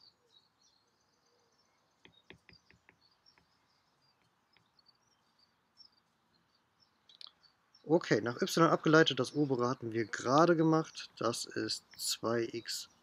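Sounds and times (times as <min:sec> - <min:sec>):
faint bird chirps: 0:00.0 - 0:13.0
stylus tapping on tablet screen: 0:02.0 - 0:04.8.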